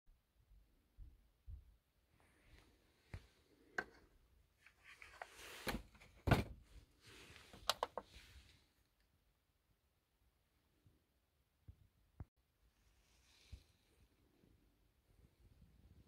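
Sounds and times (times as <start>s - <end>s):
thud: 6.2s - 6.6s.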